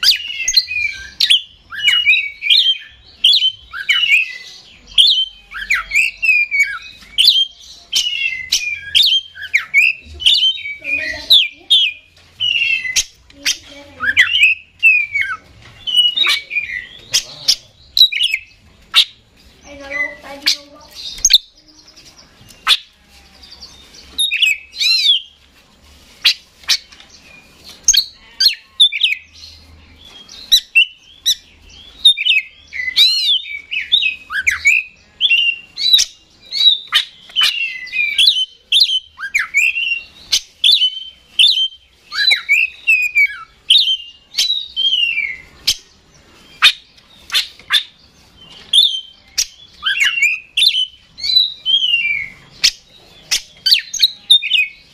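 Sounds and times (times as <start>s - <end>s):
bird singing whistled phrases: 0.0s - 17.3s, 32.0s - 45.8s, 46.5s - 54.8s.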